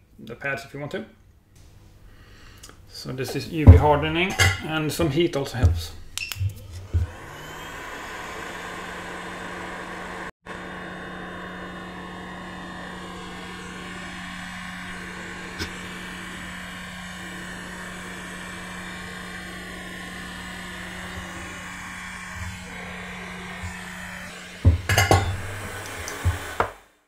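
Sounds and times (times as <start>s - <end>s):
hot-air gun blowing: 6.1s - 27.0s.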